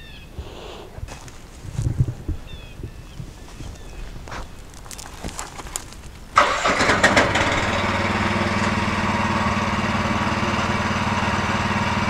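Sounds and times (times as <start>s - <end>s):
gasoline engine starting and running: 5.8s - 12.0s.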